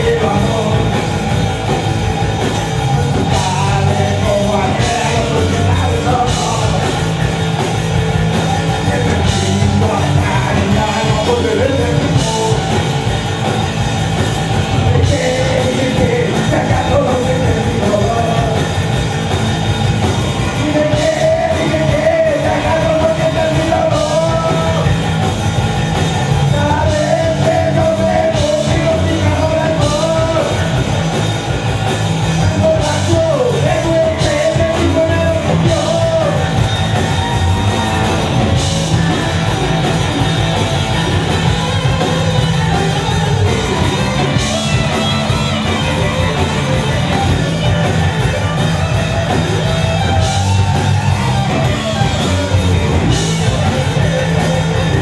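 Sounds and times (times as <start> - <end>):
man singing: 0.0 - 1.8, 2.5 - 7.4, 8.3 - 13.6, 14.6 - 19.1, 20.1 - 25.2, 26.1 - 31.0, 32.2 - 39.4
blues rock band playing: 0.0 - 55.0.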